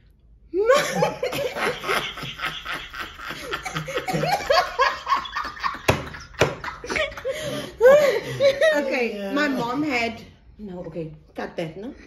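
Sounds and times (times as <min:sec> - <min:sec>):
women laughing: 0:00.6 - 0:09.5.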